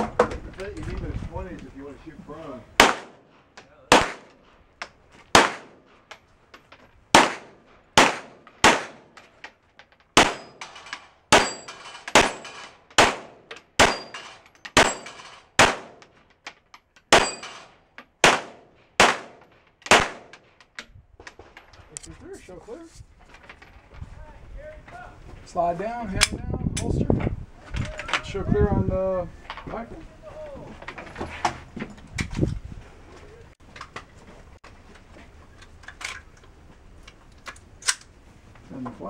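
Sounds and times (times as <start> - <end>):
pistol shots: 2.8 - 3.3, 3.9 - 4.4, 5.3 - 5.9, 7.1 - 9.2, 10.2 - 10.6, 11.3 - 16.0, 17.1 - 20.4
steel targets ringing: 17.2 - 17.7.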